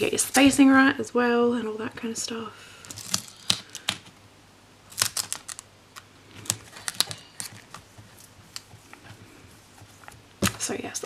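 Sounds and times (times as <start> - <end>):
tape being pulled and pressed: 2.9 - 4.2, 4.9 - 9.2.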